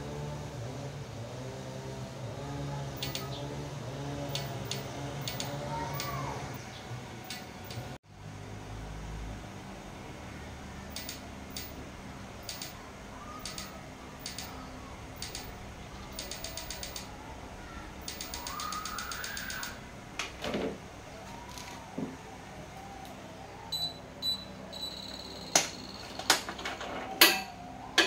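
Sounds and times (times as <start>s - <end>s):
bird calls: 2.8s - 8.0s, 12.4s - 19.9s
sharp clicks: 3.0s - 3.4s, 4.2s - 6.6s, 7.2s - 8.0s, 10.9s - 11.8s, 12.4s - 17.2s, 18.0s - 20.4s.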